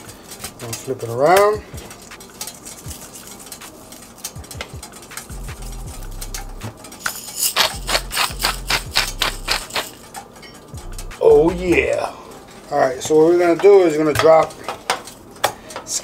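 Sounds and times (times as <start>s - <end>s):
pepper grinder clicks: 3.6s - 10.0s.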